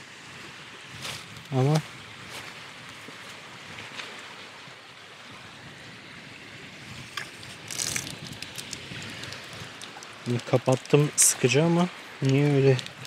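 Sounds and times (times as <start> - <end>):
shower trickling and dripping: 7.1 - 13.0.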